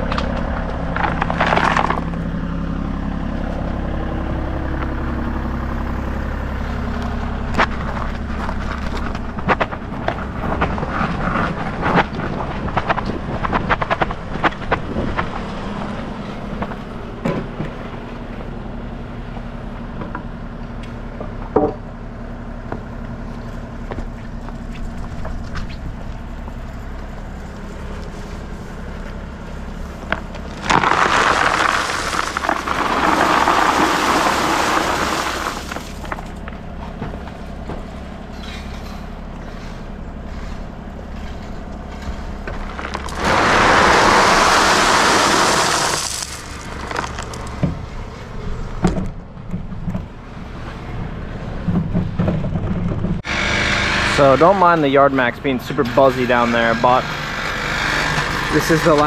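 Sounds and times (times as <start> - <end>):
loud rush of noise: 42.8 - 47.8
small engine buzzy drone: 53.2 - 54.8, 55.7 - 59.0.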